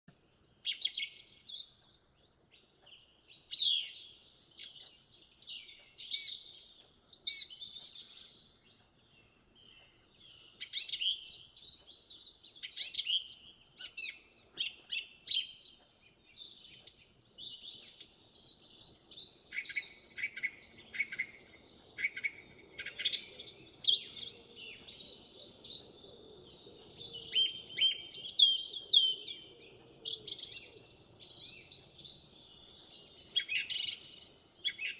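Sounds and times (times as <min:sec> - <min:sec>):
finches chirping and singing: 0:00.2 - 0:34.9.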